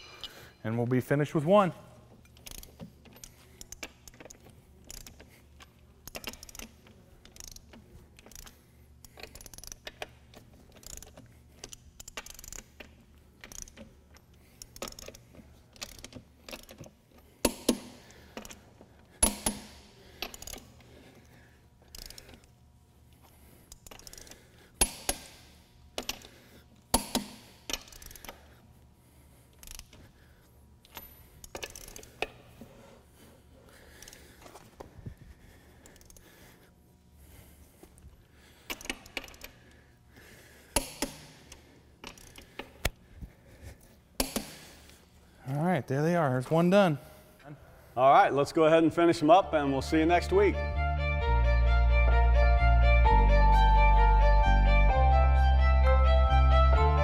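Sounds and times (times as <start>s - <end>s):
sharp wrench clicks: 2.2s - 10.1s, 10.7s - 18.6s, 19.2s - 20.7s, 21.9s - 22.5s, 23.7s - 26.3s, 26.9s - 28.4s, 29.5s - 30.0s, 30.8s - 32.4s, 38.7s - 39.6s, 40.8s - 43.0s
torque wrench ratchet clicking: 2.4s - 5.3s, 6.0s - 10.1s, 10.7s - 18.6s, 19.2s - 20.7s, 21.9s - 22.5s, 23.7s - 26.3s, 26.9s - 28.4s, 29.5s - 30.0s, 30.8s - 32.3s, 42.0s - 42.7s.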